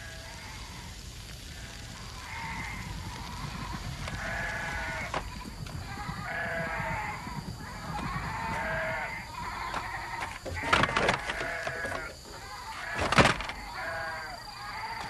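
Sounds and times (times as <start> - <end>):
sheep bleating: 1.6 - 15.0.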